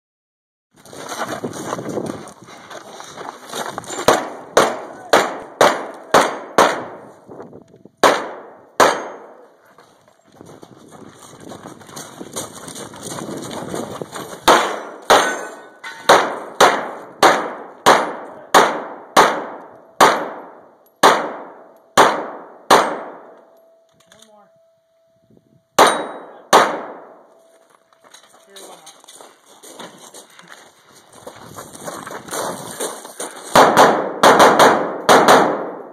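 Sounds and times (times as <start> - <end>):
pistol shots: 4.1 - 7.0, 8.0 - 9.4, 14.4 - 23.4, 25.8 - 27.2, 33.5 - 35.9.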